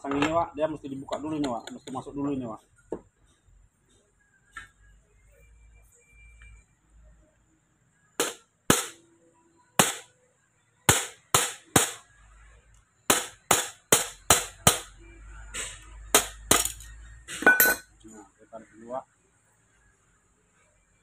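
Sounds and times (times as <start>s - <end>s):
hammer striking metal punch: 8.2s - 9.0s, 9.8s - 10.1s, 10.9s - 12.1s, 13.1s - 15.0s, 16.1s - 17.9s.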